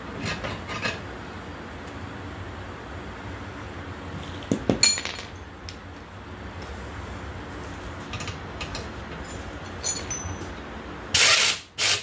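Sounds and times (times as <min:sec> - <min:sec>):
metal parts clinking: 0:08.1 - 0:10.5.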